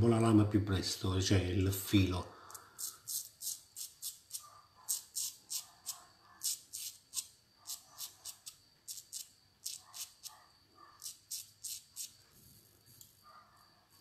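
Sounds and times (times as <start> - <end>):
razor scraping stubble: 2.8 - 10.4.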